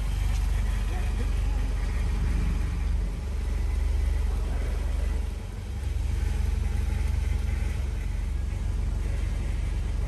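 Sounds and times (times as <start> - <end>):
car engine idling: 0.0 - 10.0.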